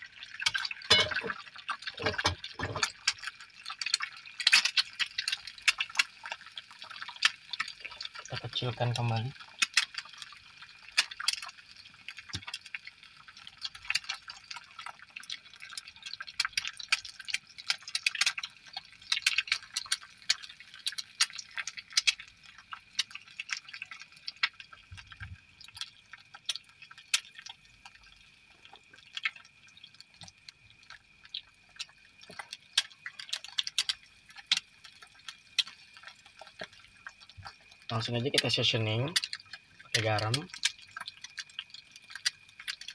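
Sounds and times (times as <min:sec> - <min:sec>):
oil sizzling and spitting: 0:00.0 - 0:42.9.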